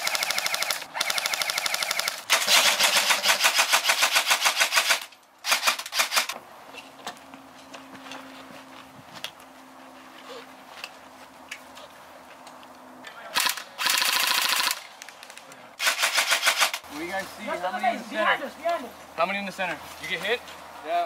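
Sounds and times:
airsoft gun rapid bursts: 0.0s - 6.4s, 13.4s - 14.8s, 15.8s - 16.8s.

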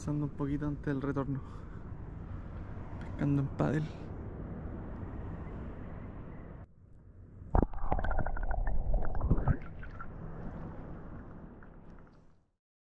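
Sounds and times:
splashes and knocks: 7.6s - 12.3s
water sloshing and gurgling: 7.6s - 12.5s.

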